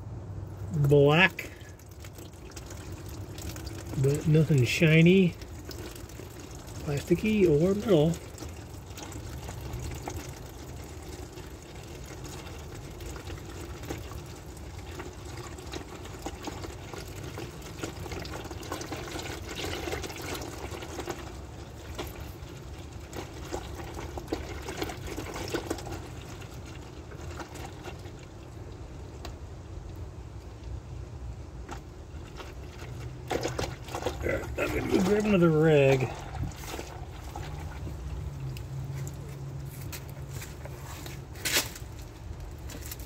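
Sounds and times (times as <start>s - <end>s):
oil pouring into a pan: 1.1s - 29.1s.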